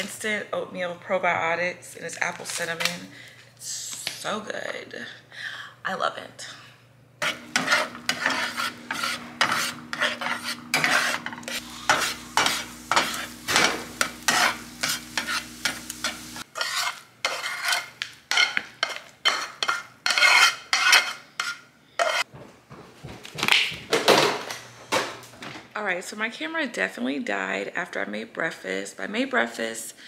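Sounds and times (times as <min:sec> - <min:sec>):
eggs sizzling: 0:07.2 - 0:22.2
spatula scraping eggs in a pan: 0:07.2 - 0:22.3.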